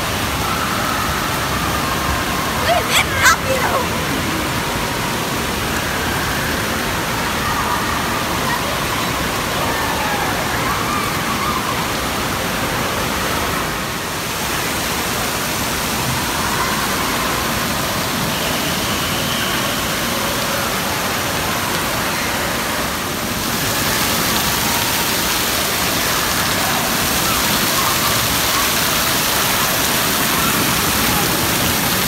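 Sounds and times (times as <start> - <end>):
water rushing and splashing: 0.0 - 32.0
faint voices: 2.0 - 5.0.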